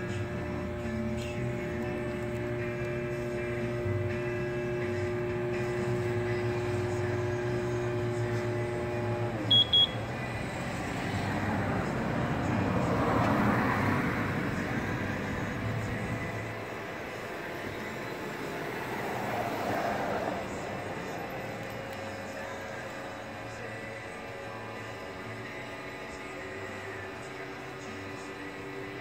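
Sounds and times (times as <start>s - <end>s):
electric motor humming: 0.0s - 29.0s
short high beeps: 9.5s - 10.0s.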